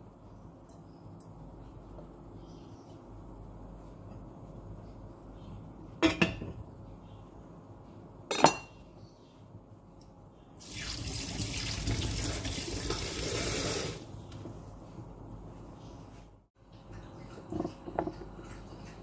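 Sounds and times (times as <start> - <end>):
tap water running into sink: 10.6 - 14.0.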